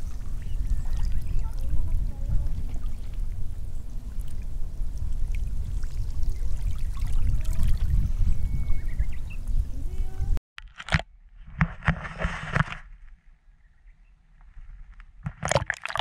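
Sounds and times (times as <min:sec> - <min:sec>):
water washing at shoreline: 0:00.0 - 0:08.0
wind rumble on microphone: 0:00.0 - 0:10.4.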